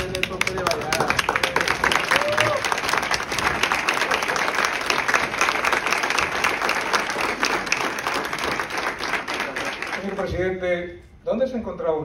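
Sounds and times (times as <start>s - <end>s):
crowd applauding: 0.0s - 10.4s.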